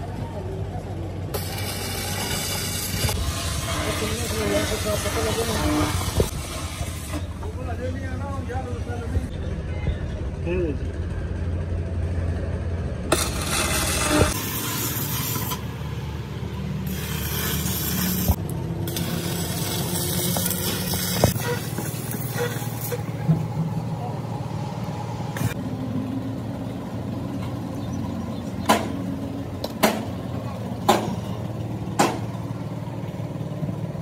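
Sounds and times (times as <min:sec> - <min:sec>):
welding arc crackling and hissing: 0:01.3 - 0:07.3, 0:13.1 - 0:23.3
sharp knocks: 0:29.6 - 0:30.1, 0:32.0 - 0:32.3.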